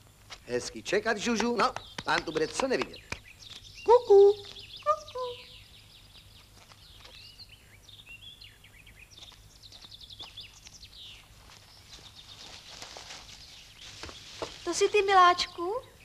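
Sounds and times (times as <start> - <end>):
small songbirds chirping: 0.5 - 16.0.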